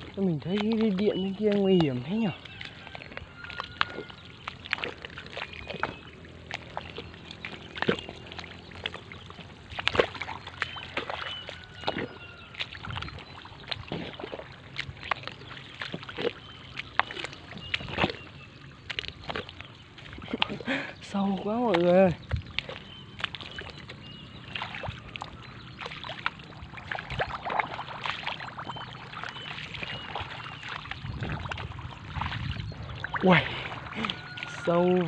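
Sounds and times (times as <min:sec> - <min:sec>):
person wading through water: 0:00.0 - 0:35.0.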